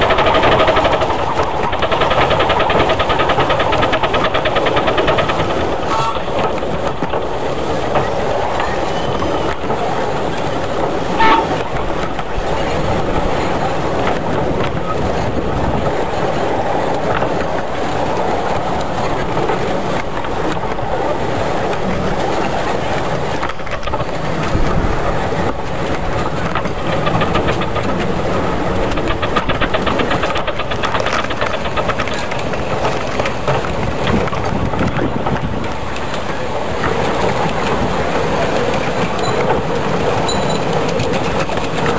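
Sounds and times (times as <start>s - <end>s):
train wheels clattering on track: 0.0s - 41.9s
steam train whistle toot: 5.8s - 6.4s, 11.2s - 11.6s.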